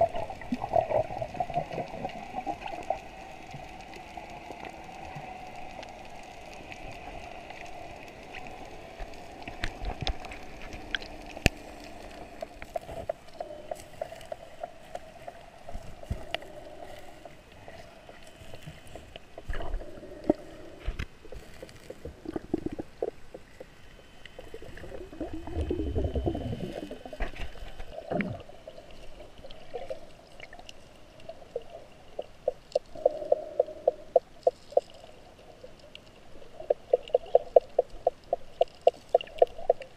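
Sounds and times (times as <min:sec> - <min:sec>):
sharp clicks underwater: 0:00.0 - 0:16.6, 0:32.1 - 0:35.2, 0:35.8 - 0:39.9
muffled underwater hum: 0:00.0 - 0:39.9
bubbles rushing: 0:24.5 - 0:27.2.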